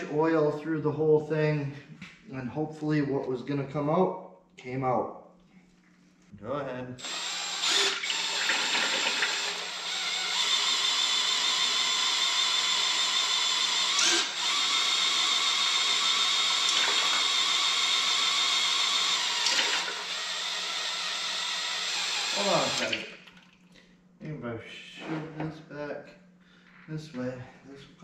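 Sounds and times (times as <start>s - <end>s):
electric drill whining: 7.0s - 23.1s.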